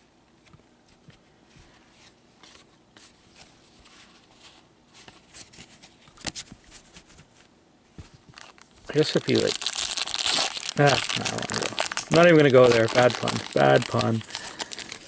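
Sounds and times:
trading cards clicking and rubbing: 8.4 - 15.0.

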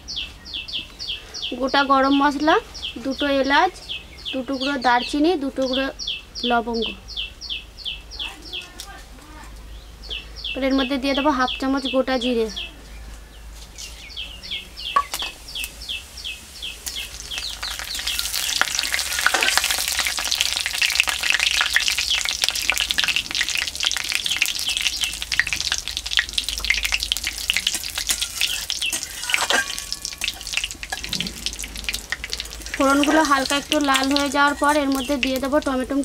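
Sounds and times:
bird chirping: 0.0 - 8.8, 9.6 - 19.6, 21.2 - 36.0
spices sizzling in hot oil: 14.9 - 36.0.

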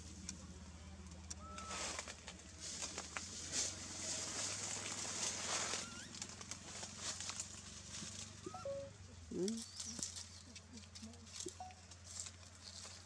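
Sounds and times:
leaves and branches rustling: 1.2 - 8.5, 9.5 - 13.0.

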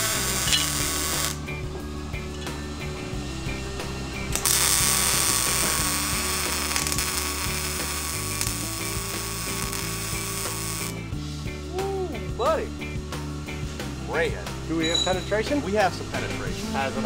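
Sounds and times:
power tool whining: 0.0 - 11.1
background music: 0.0 - 17.0.

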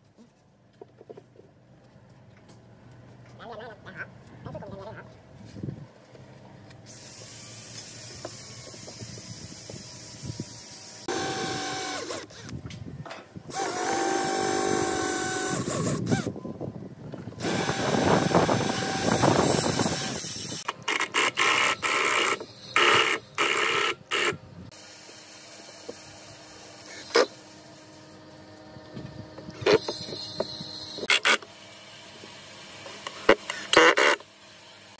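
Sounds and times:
cordless drill driving screws: 6.9 - 12.5, 13.5 - 16.3, 17.4 - 24.3.

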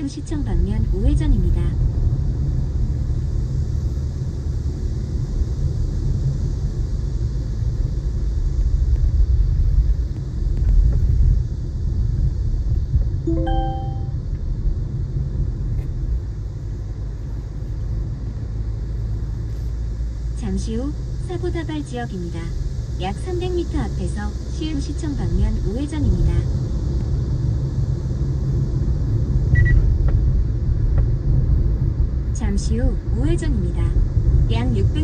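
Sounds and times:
car engine and tyres rumbling: 0.0 - 13.2, 13.9 - 35.0
two-note electronic chime: 13.3 - 14.2.

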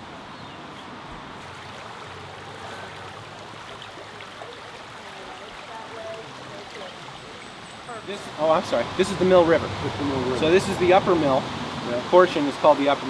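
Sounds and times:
river flowing over rocks: 0.0 - 13.0.

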